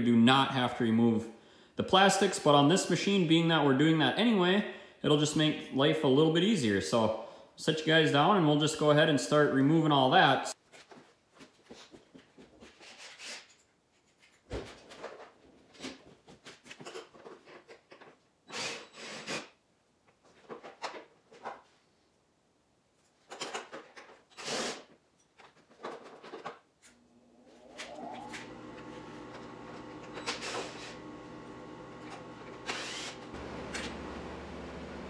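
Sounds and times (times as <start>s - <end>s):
plastic panels scraping and knocking: 25.3s - 26.8s.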